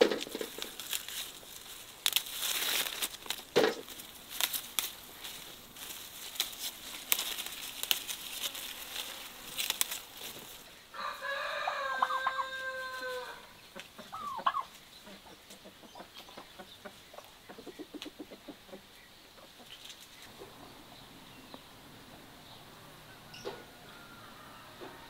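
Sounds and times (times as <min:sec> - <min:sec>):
hens clucking: 0:02.8 - 0:25.0
rooster crowing: 0:10.9 - 0:13.6, 0:22.7 - 0:25.0.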